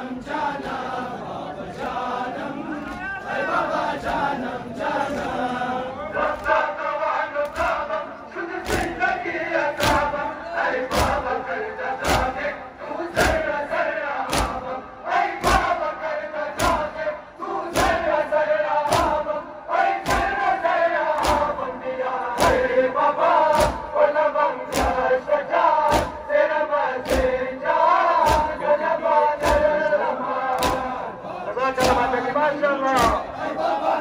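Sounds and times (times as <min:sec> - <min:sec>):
crowd chanting in unison: 0:00.0 - 0:34.0
chest-beating slaps: 0:07.4 - 0:07.8, 0:08.6 - 0:09.0, 0:09.7 - 0:10.2, 0:10.8 - 0:12.4, 0:13.1 - 0:13.5, 0:14.2 - 0:14.7, 0:15.4 - 0:15.8, 0:16.5 - 0:17.0, 0:17.7 - 0:18.1, 0:18.8 - 0:19.3, 0:20.0 - 0:20.4, 0:21.1 - 0:21.6, 0:22.4 - 0:22.8, 0:23.5 - 0:24.0, 0:24.7 - 0:25.2, 0:25.8 - 0:26.3, 0:27.0 - 0:27.4, 0:28.2 - 0:28.6, 0:29.4 - 0:29.9, 0:30.5 - 0:31.0, 0:31.8 - 0:32.2, 0:32.9 - 0:33.3.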